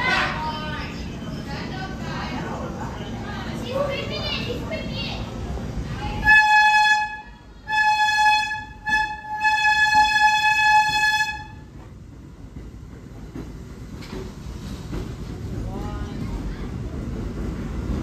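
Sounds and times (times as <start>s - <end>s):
train rumbling: 0.0s - 18.0s
subway train horn blasts: 6.1s - 11.8s.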